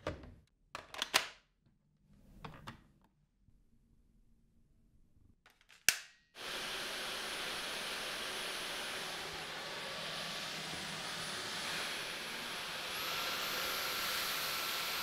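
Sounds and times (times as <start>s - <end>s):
vacuum cleaner motor running: 6.4s - 15.0s.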